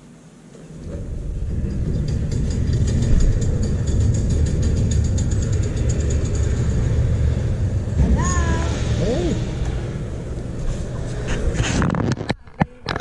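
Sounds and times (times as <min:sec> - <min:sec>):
garage door motor rumble: 0:00.7 - 0:11.6
garage door rollers clicking: 0:00.8 - 0:07.8.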